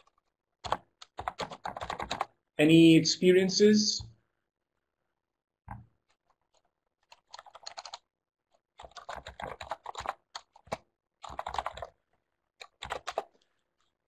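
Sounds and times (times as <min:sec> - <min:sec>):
typing on a computer keyboard: 0:00.0 - 0:02.4, 0:05.7 - 0:12.0, 0:12.6 - 0:13.5.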